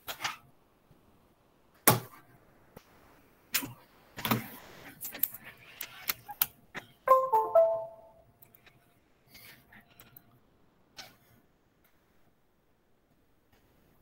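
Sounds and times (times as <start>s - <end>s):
short chime: 7.1s - 8.2s.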